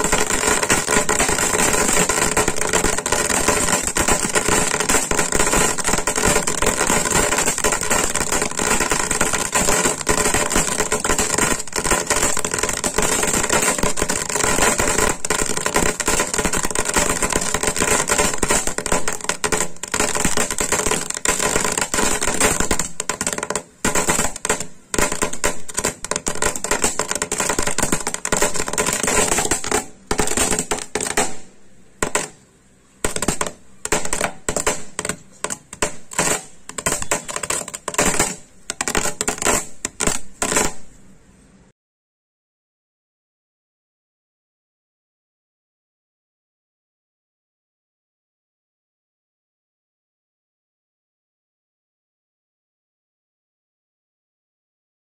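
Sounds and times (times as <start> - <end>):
firework hissing and crackling: 0.0 - 32.4, 33.0 - 41.0.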